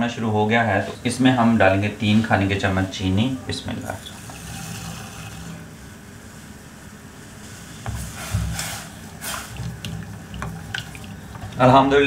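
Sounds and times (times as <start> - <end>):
spatula stirring and scraping pot: 7.6 - 12.0.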